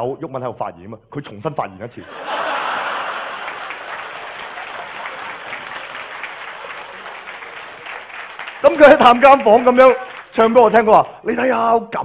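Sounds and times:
audience applauding: 2.1s - 10.6s.

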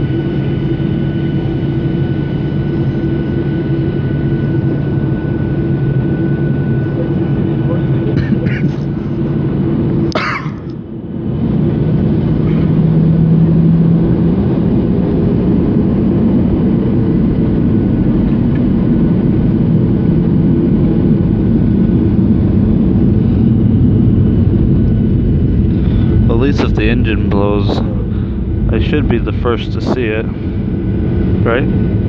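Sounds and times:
jet engines rumbling in cabin: 0.0s - 32.0s.

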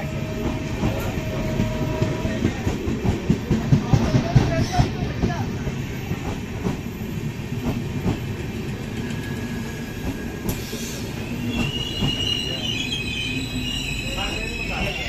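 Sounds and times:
train wheels rumbling on rail: 0.0s - 15.0s
high wheel squeal: 9.1s - 15.0s.

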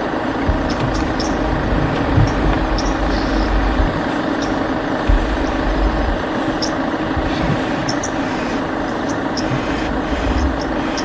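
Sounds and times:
car engine idling: 0.0s - 11.0s
high bird chirps: 0.6s - 1.5s, 2.2s - 3.6s.

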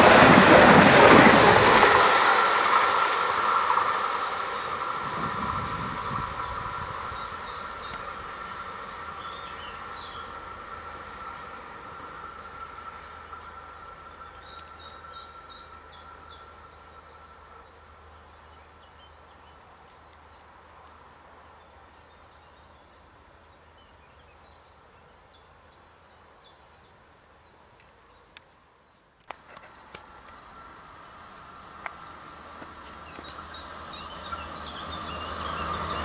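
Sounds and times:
electric train rolling: 0.0s - 20.4s, 29.3s - 36.0s.

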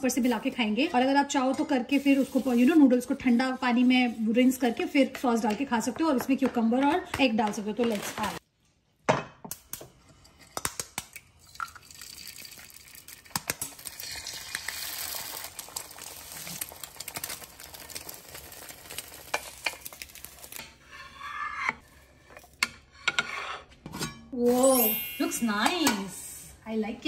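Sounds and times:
eggs sizzling in a pan: 0.0s - 4.8s, 9.6s - 22.9s.

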